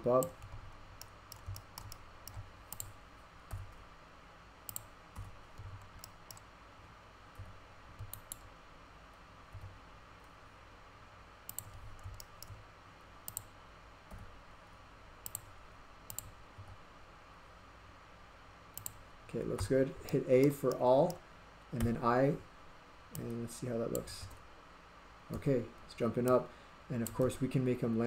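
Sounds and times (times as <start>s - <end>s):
computer mouse clicks: 0.2s - 3.7s, 4.7s - 6.5s, 7.4s - 8.5s, 11.5s - 12.6s, 13.3s - 13.5s, 15.2s - 15.5s, 16.1s - 16.7s, 18.7s - 19.0s.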